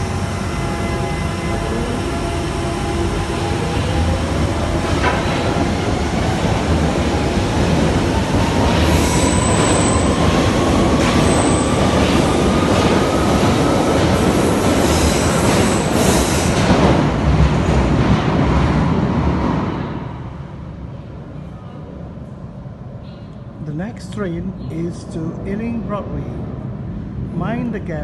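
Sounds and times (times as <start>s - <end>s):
wheels rumbling on rail: 0.0s - 21.4s.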